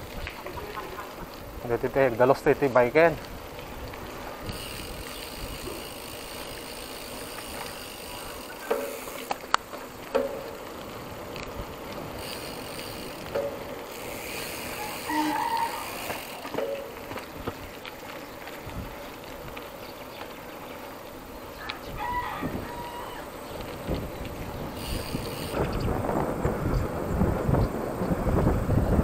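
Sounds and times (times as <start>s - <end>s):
bike tyre noise: 0.0s - 29.0s
wind: 0.0s - 29.0s
freewheel ratchet ticking: 4.4s - 9.6s, 12.1s - 16.6s, 24.7s - 25.7s.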